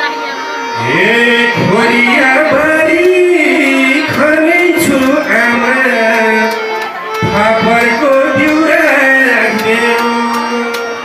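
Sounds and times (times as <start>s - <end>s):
man singing folk song: 0.8s - 6.6s, 7.2s - 11.0s
hand drum beating: 6.2s - 10.8s.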